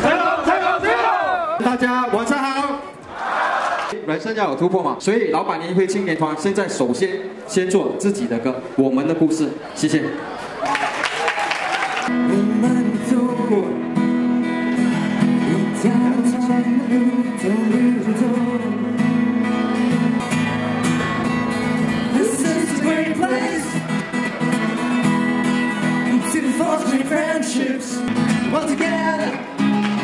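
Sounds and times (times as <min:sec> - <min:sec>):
acoustic guitar strumming: 0:12.1 - 0:30.0
men singing: 0:15.5 - 0:18.8, 0:22.1 - 0:23.8, 0:26.0 - 0:29.3.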